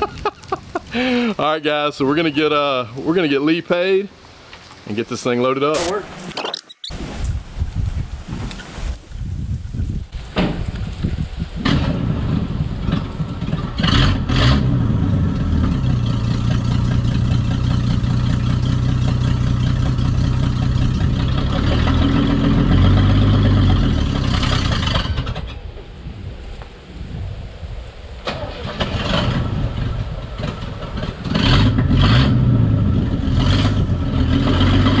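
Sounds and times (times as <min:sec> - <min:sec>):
sharp engine knocks: 0:10.3 - 0:10.8
car engine running: 0:14.7 - 0:25.2.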